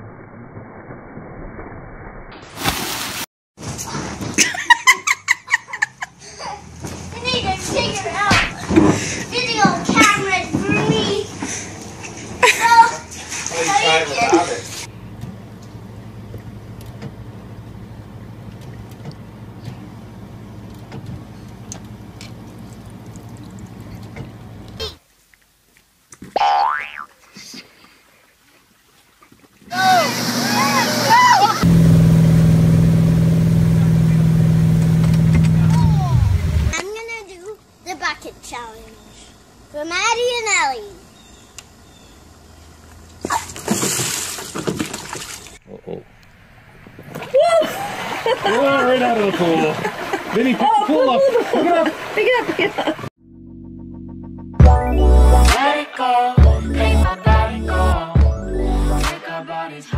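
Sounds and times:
water splashing from bucket: 2.4s - 3.3s, 43.2s - 45.6s
child crying: 29.7s - 31.6s
steady low hum: 29.9s - 43.5s.

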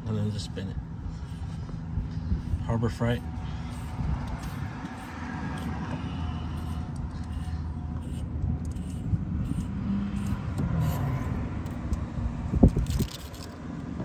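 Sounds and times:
steady low rumble: 0.0s - 14.0s
wire brush scraping metal tube: 1.1s - 11.4s.

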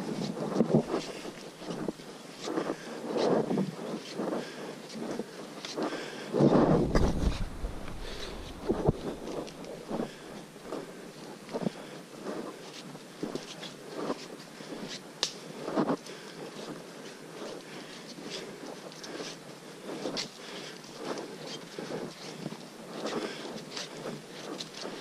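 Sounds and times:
footsteps on muddy dirt trail: 6.4s - 11.0s.

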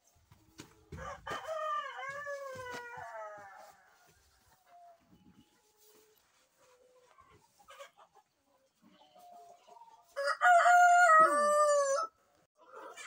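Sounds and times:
rooster crowing: 1.0s - 3.6s, 10.2s - 12.2s.

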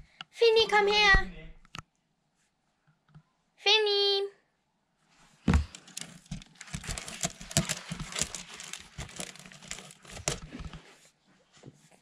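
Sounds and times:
cat scratching cardboard: 5.5s - 10.9s.

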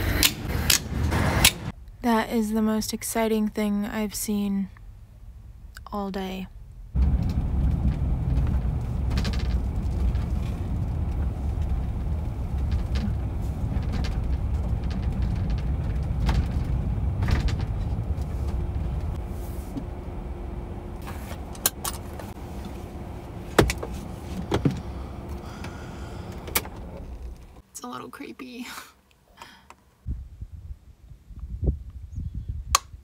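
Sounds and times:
van engine and tyres rumbling: 0.0s - 3.6s, 4.8s - 27.7s.

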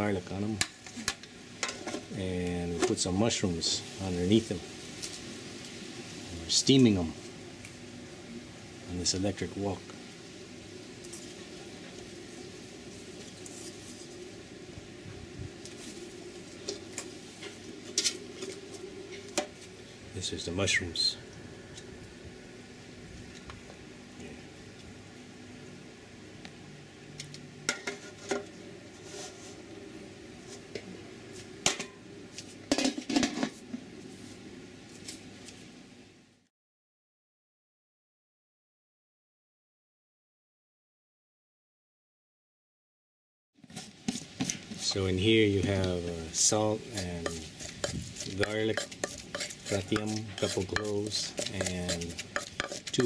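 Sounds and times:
steady low hum: 0.0s - 36.4s
water steaming: 43.6s - 53.0s.

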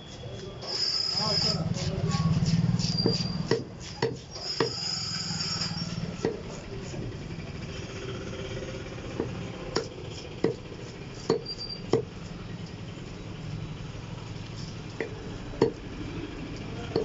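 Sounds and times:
cleaver chopping fish on wood: 3.4s - 4.3s, 9.2s - 10.7s.

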